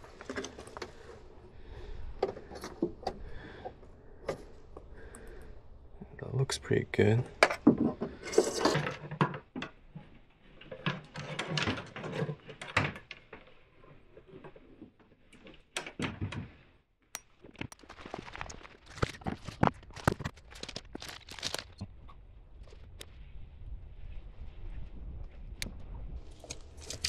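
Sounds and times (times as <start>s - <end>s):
electrical cable being handled: 17.6s - 21.9s, 25.6s - 27.0s.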